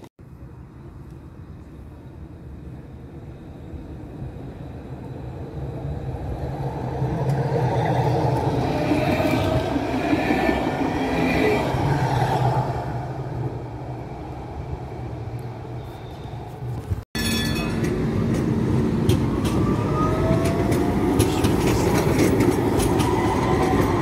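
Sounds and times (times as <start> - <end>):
tram rumbling past: 0.0 - 24.0.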